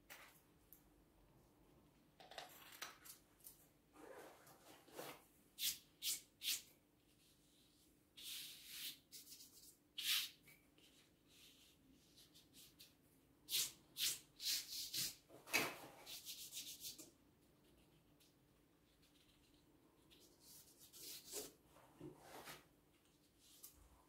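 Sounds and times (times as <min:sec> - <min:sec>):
brush strokes on wallpaper: 0:18.9 - 0:24.0.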